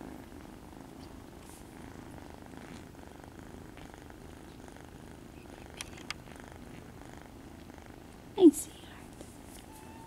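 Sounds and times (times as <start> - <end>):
kitten purring: 0.0 - 10.0.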